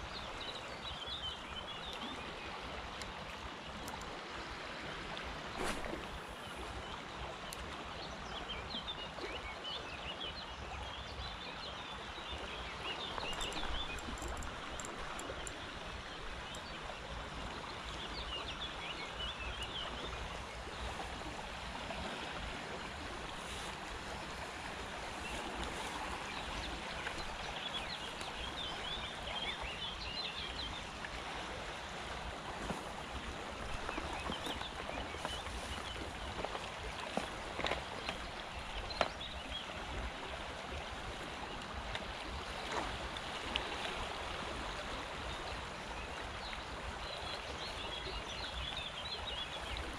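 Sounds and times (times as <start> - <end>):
river water running over shallows: 0.0 - 49.9
birds chirping: 13.0 - 16.8.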